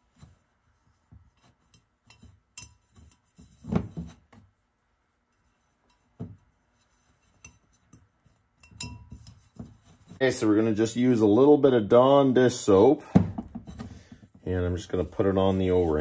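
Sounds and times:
metal clinks and knocks on wood: 0:07.5 - 0:10.1.

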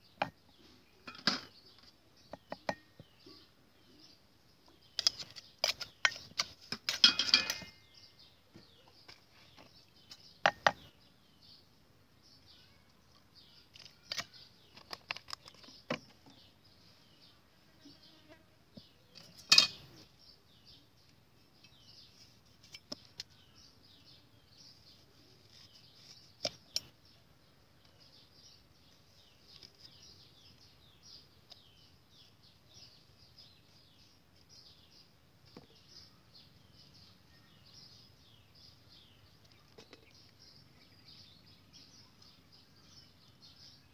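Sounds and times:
metal spoon clinking on clay mortar: 0:05.0 - 0:07.8.

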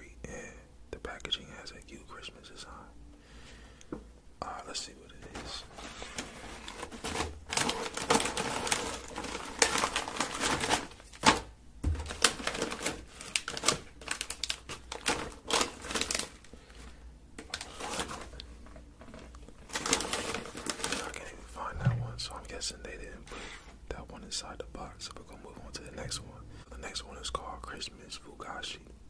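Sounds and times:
plastic wrappers crinkling: 0:05.3 - 0:21.4
candy packages clicking and tapping: 0:05.4 - 0:21.2.

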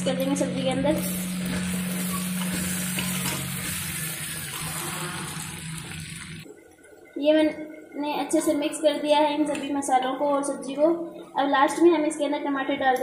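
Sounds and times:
food sizzling in hot oil: 0:01.0 - 0:06.4
steel spoon stirring: 0:01.6 - 0:03.8.

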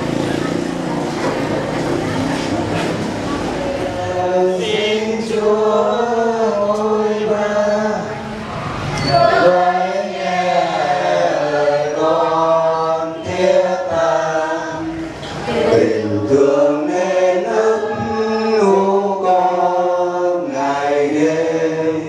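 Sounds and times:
group singing a hymn: 0:00.0 - 0:22.0.

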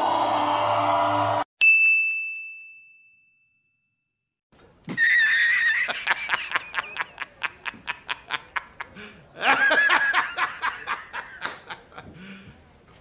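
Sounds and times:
man laughing hard: 0:04.9 - 0:12.2.

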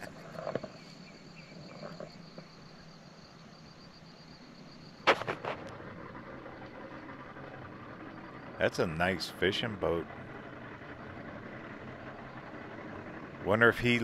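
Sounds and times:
high-pitched whine: 0:00.0 - 0:14.0
sharp loud knock: 0:05.1 - 0:05.6.

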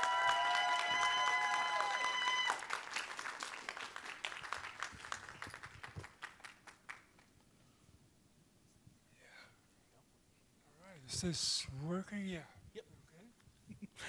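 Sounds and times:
crowd clapping: 0:00.0 - 0:07.4.

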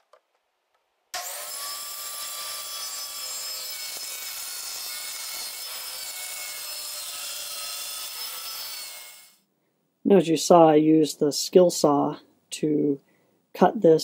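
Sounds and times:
circular saw cutting plywood: 0:01.2 - 0:09.4.

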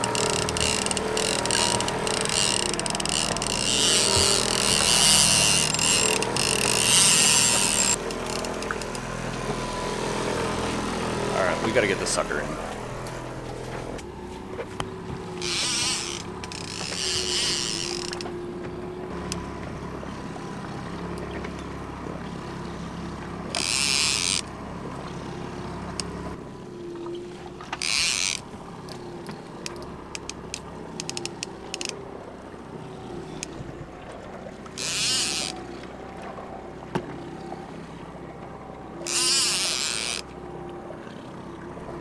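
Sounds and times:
fishing reel clicking and ratcheting: 0:00.0 - 0:09.0, 0:15.4 - 0:18.3, 0:23.5 - 0:24.5, 0:27.8 - 0:29.0, 0:29.6 - 0:32.0, 0:34.8 - 0:35.6, 0:39.0 - 0:40.3
small clicks: 0:00.0 - 0:09.1, 0:14.8 - 0:19.5, 0:23.5 - 0:24.5, 0:27.6 - 0:32.0, 0:34.6 - 0:36.0
boat motor humming: 0:00.0 - 0:42.0.

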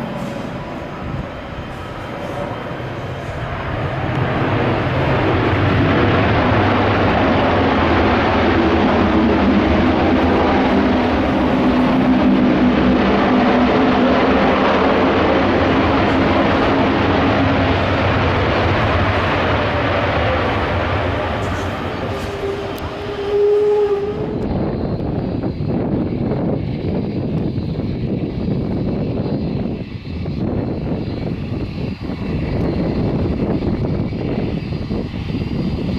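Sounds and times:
jet engines at high power: 0:00.0 - 0:35.9.

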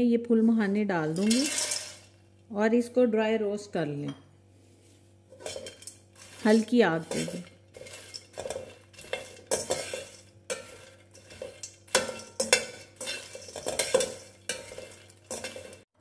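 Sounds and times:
seeds rattling in a pan: 0:01.2 - 0:02.1, 0:05.4 - 0:15.9
spoon scraping a pan: 0:01.2 - 0:02.1, 0:05.3 - 0:15.9.

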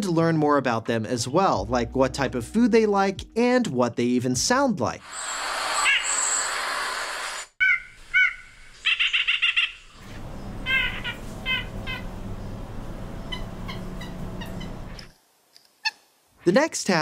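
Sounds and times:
nuthatch calls: 0:05.1 - 0:06.8, 0:07.6 - 0:12.5, 0:13.2 - 0:15.1
low background rumble: 0:10.0 - 0:15.1.

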